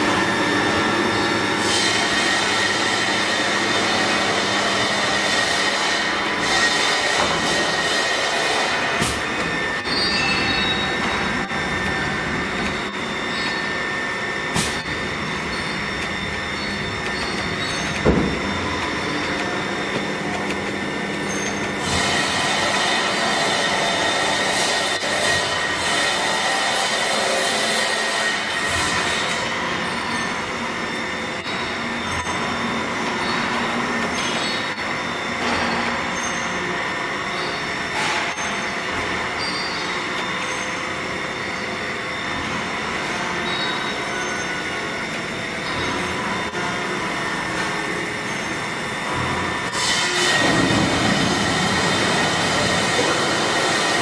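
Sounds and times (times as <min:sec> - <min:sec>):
machine running noise: 0:00.0 - 0:54.0
milling cutter whine: 0:00.0 - 0:54.0
low machine hum: 0:07.0 - 0:27.2
high squealing tones: 0:09.6 - 0:14.2, 0:14.8 - 0:19.8
thump: 0:18.1 - 0:18.4.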